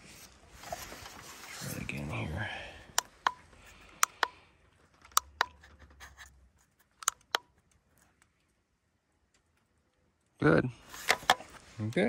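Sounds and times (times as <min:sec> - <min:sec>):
metallic tool clicks and scrapes: 0:04.0 - 0:04.4, 0:06.9 - 0:07.4.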